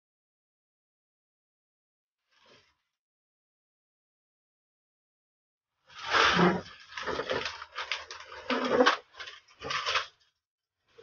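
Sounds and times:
cardboard box scraping and rubbing: 5.9s - 10.1s.

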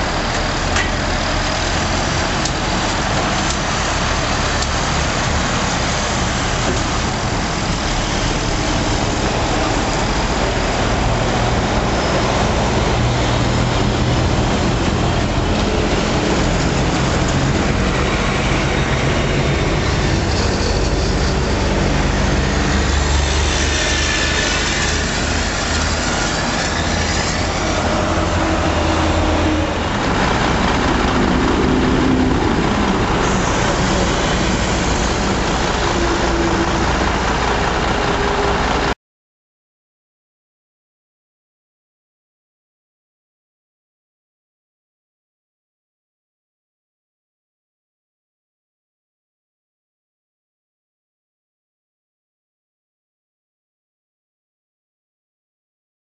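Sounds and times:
diesel truck engines idling: 0.0s - 39.0s
highway traffic noise: 0.0s - 39.0s.

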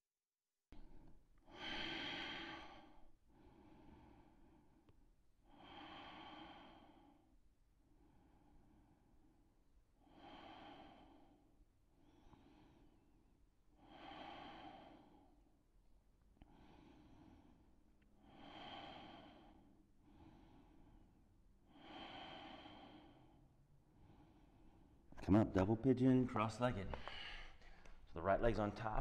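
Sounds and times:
slow deep breathing: 0.8s - 25.1s, 26.9s - 28.2s.

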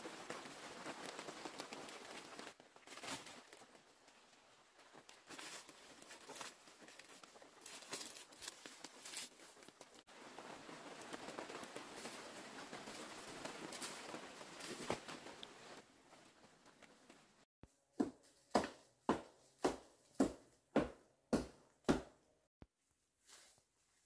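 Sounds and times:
dry leaves rustling and crackling: 0.0s - 15.8s.

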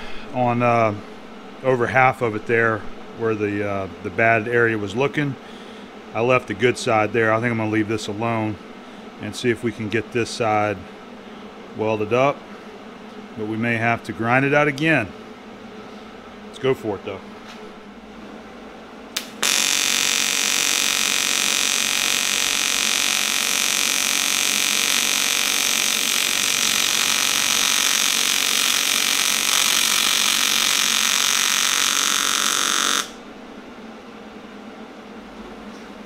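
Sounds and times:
welding arc buzzing: 19.1s - 33.6s
sharp click: 19.2s - 19.4s.

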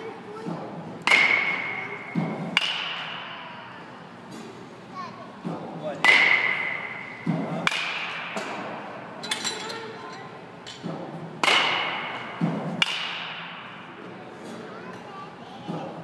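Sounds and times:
bat hitting baseballs: 0.5s - 3.6s, 5.4s - 9.2s, 10.8s - 14.6s.

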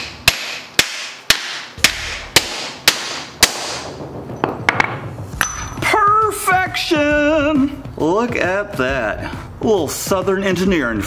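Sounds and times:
hammer striking steel: 0.0s - 6.0s.

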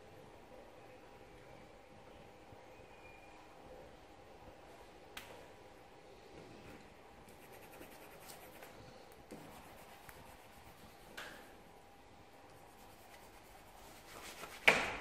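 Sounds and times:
pencil scratching on paper: 7.3s - 11.1s, 12.5s - 14.6s.

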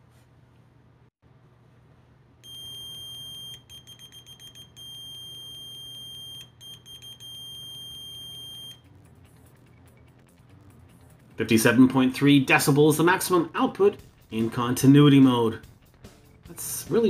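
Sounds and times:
multimeter continuity beep: 2.4s - 9.0s.

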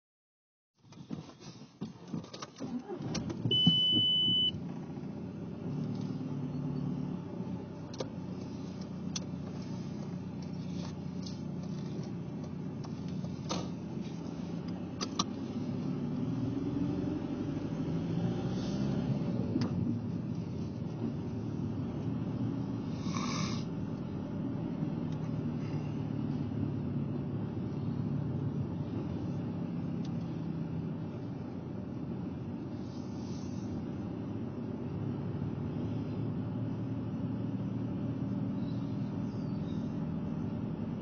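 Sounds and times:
car engine and road rumble: 0.8s - 41.0s
loud high beep: 3.5s - 4.6s.

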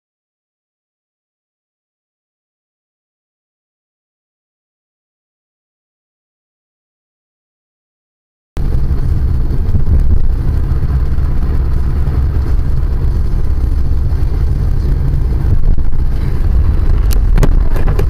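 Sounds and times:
car driving inside cabin: 8.6s - 18.0s.

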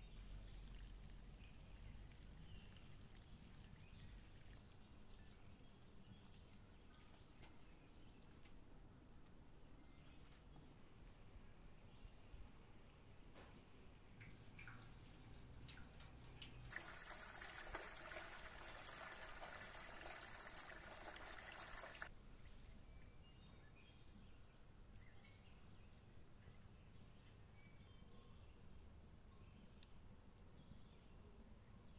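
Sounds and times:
water trickling into metal bowl: 0.1s - 7.2s, 14.1s - 22.1s.

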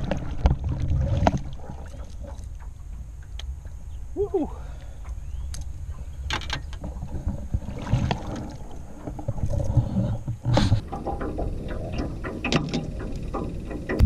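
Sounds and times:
steady low rumble: 0.0s - 14.0s
fish splashing in water: 7.2s - 10.0s.

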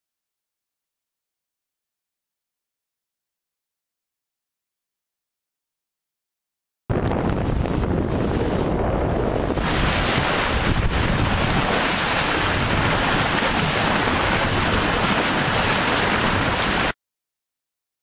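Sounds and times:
wind buffeting microphone: 6.9s - 16.9s
water rushing along a hull: 6.9s - 17.0s.

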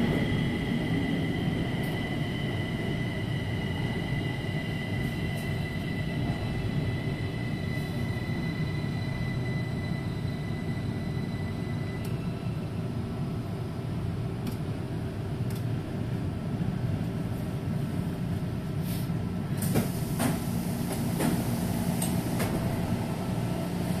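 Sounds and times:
train car low hum: 0.0s - 24.0s
sliding doors opening with hiss: 18.8s - 22.8s.

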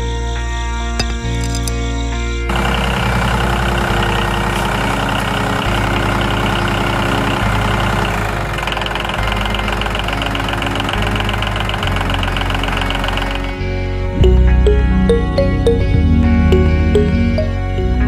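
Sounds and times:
tractor engine knocking: 2.5s - 13.4s.

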